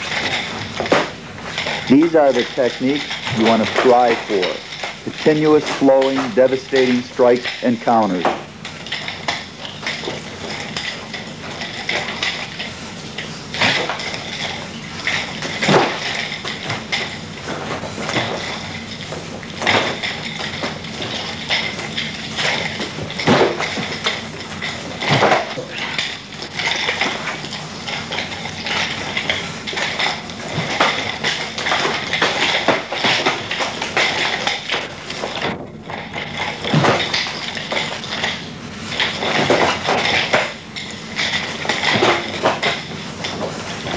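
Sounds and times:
nunchaku clicking and rattling: 0.0s - 43.9s.

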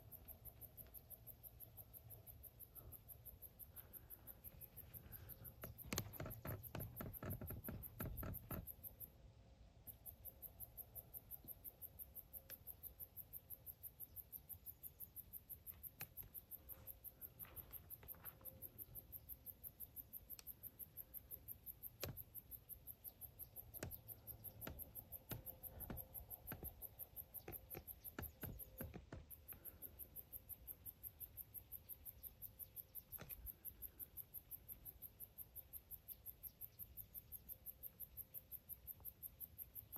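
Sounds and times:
crickets chirping: 0.0s - 39.9s
faint clicks and knocks: 0.1s - 9.1s, 20.0s - 30.5s.

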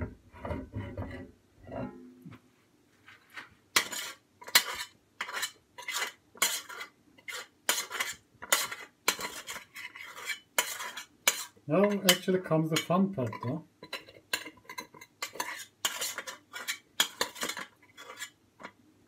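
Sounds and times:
spoon scraping metal pot: 3.8s - 18.8s.

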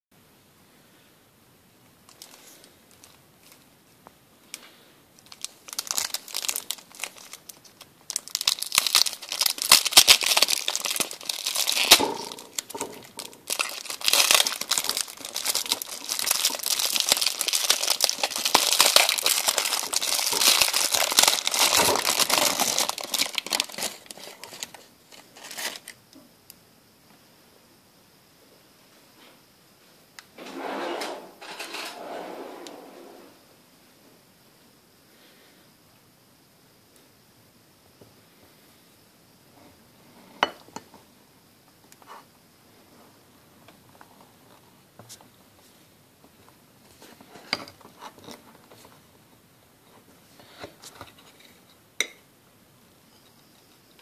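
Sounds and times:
plastic wrapping crinkling and tearing: 5.2s - 26.0s.

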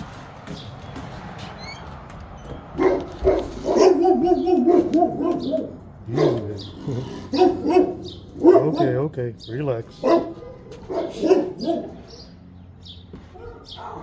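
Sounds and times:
dog barking: 2.8s - 6.6s, 7.3s - 9.0s, 10.0s - 12.2s, 13.3s - 14.0s.

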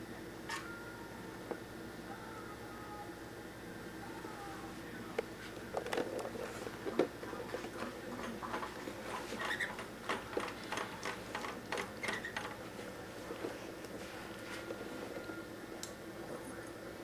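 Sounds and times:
bird claws ticking on vinyl floor: 9.4s - 12.6s.

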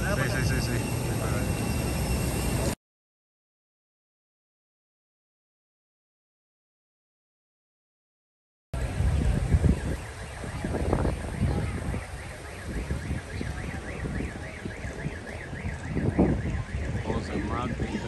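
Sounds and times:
car alarm warbling: 0.0s - 2.8s, 9.4s - 18.0s
wind on microphone: 8.8s - 18.0s.

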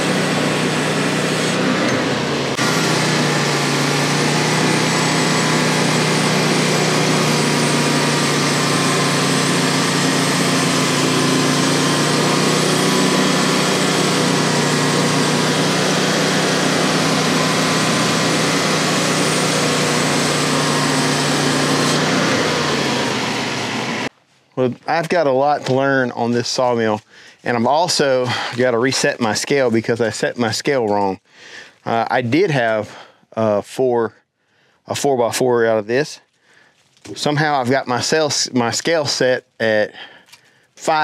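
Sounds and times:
small petrol engine running: 0.0s - 24.1s.

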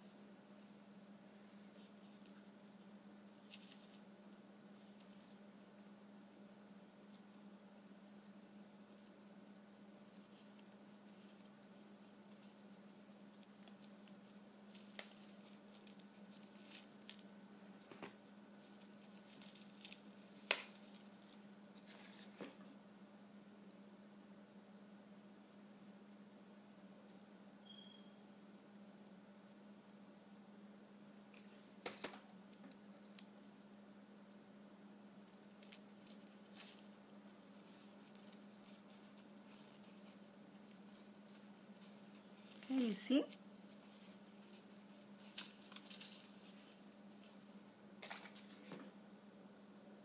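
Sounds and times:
faint low hum: 0.0s - 50.0s
paper rustling and light clicks: 10.0s - 22.8s, 31.3s - 33.4s, 35.2s - 47.4s, 48.0s - 48.9s.

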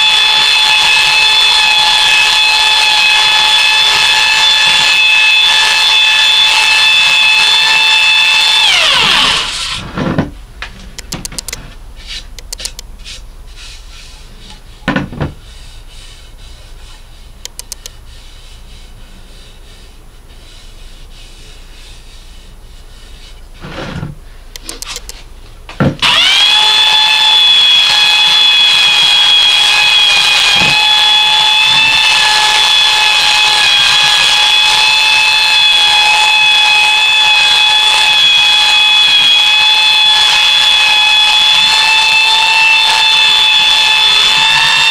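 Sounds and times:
belt sander whining: 0.0s - 9.9s, 10.9s - 11.6s, 17.4s - 18.0s, 26.0s - 44.9s.

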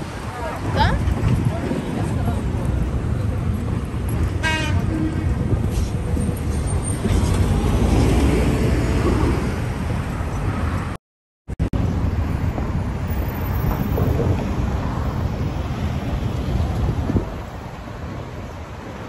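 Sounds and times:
cars passing: 0.0s - 11.0s
wind rumble on microphone: 0.0s - 11.0s, 11.6s - 19.0s.

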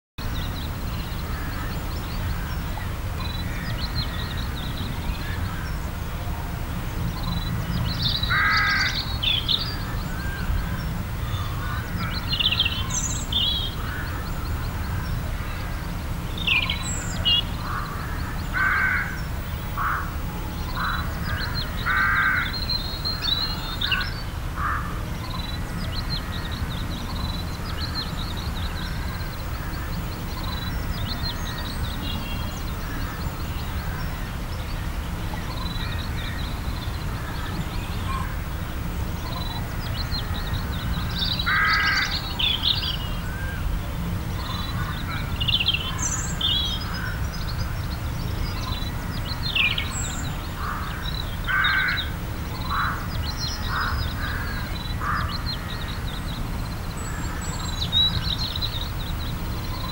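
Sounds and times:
birds calling: 0.2s - 59.9s.

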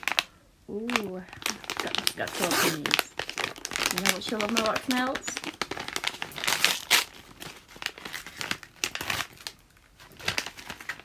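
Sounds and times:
paper wrapping crinkling: 0.0s - 11.0s.

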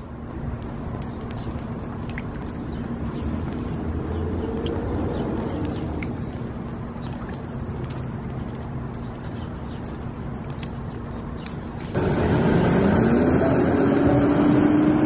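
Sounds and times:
road traffic: 0.0s - 15.0s
vehicle passing: 12.0s - 15.0s.

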